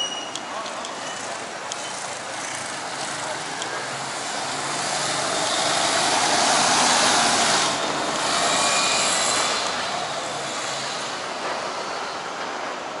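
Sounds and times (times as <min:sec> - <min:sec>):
bus driving past: 0:01.2 - 0:13.0
car passing: 0:04.4 - 0:11.1.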